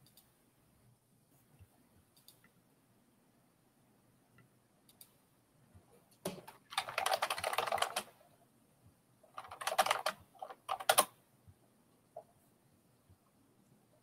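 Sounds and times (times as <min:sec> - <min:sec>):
keyboard typing: 0:06.2 - 0:08.2, 0:09.3 - 0:11.2.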